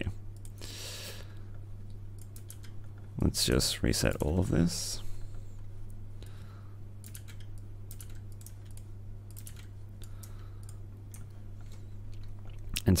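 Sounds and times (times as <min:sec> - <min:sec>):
steady low hum: 0:00.0 - 0:13.0
keyboard and mouse clicks: 0:02.2 - 0:02.8, 0:07.0 - 0:11.4.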